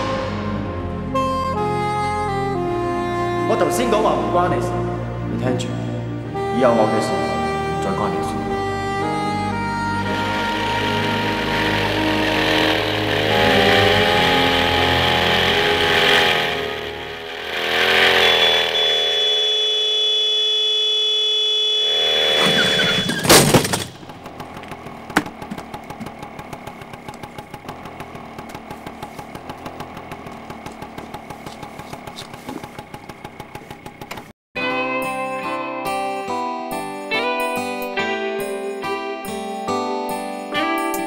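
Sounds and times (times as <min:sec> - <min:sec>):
loud bang: 0:00.0 - 0:01.2
scooter engine revving: 0:07.1 - 0:34.4
thin high squeal: 0:17.5 - 0:23.4.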